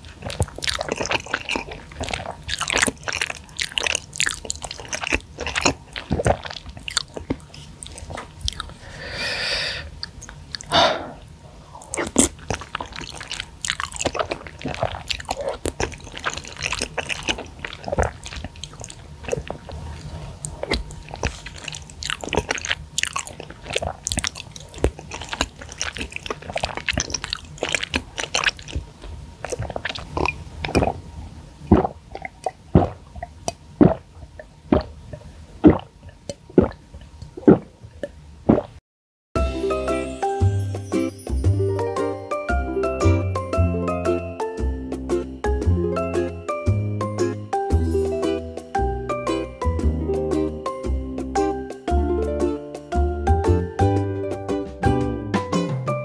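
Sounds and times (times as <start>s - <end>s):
noodle slurp: 0.0s - 9.0s, 11.8s - 31.0s, 31.7s - 37.7s, 38.5s - 38.8s
wet chewing mouth sounds: 0.0s - 9.0s, 10.0s - 31.0s, 31.7s - 38.8s.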